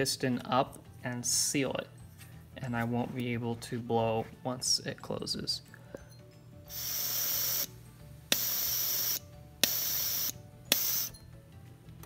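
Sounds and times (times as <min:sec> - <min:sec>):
air hissing through valve: 0:06.7 - 0:11.2
sharp valve click: 0:08.3 - 0:11.1.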